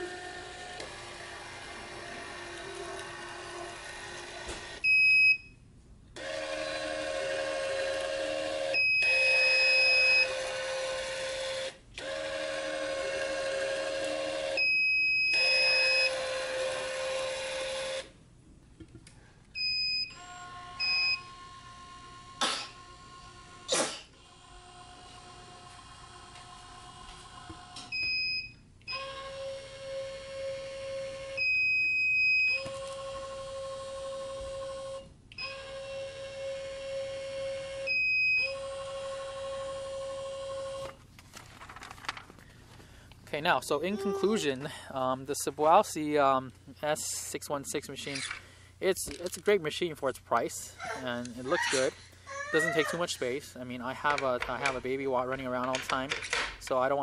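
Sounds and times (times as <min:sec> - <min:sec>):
tension head motor pulling: 0:00.0 - 0:04.8.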